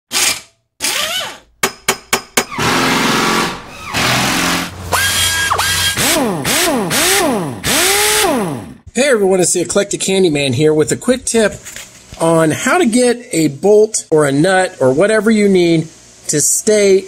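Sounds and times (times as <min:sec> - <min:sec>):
power tool whirring: 0:00.2 - 0:01.4, 0:02.4 - 0:08.8
sharp knocks: 0:01.6 - 0:04.8
motor whine sweeping up and down: 0:02.6 - 0:08.8.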